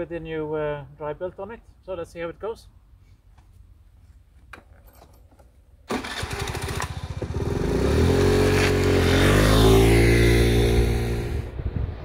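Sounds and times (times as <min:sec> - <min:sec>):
scooter engine starting and revving: 0:05.9 - 0:11.5.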